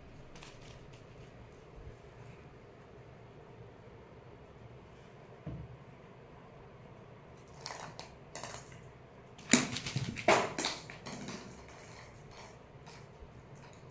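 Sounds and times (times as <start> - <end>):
kittens scuffling on tiled floor: 0.0 - 2.5, 7.4 - 13.9.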